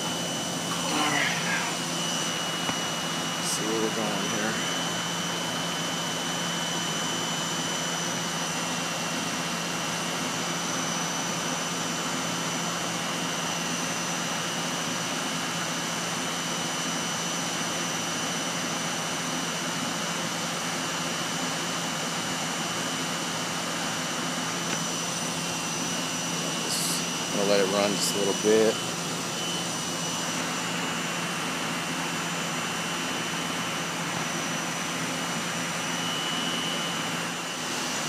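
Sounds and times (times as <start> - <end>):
faint high whine: 0.0 - 8.0, 24.1 - 38.0
air conditioner fan rushing: 0.0 - 38.0.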